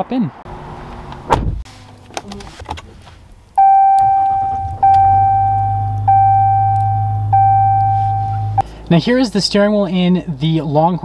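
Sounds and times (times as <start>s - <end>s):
low steady hum: 1.7s - 10.4s
dashboard warning chime: 3.6s - 8.6s.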